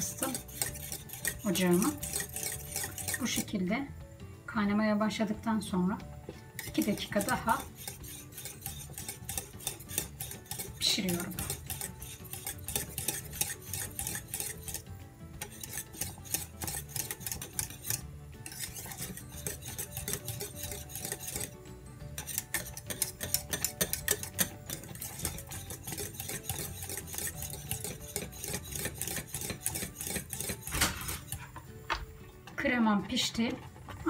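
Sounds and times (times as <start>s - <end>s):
wire whisk clicking against metal pot: 0.0s - 3.4s, 6.6s - 14.8s, 15.4s - 21.5s, 22.2s - 31.4s.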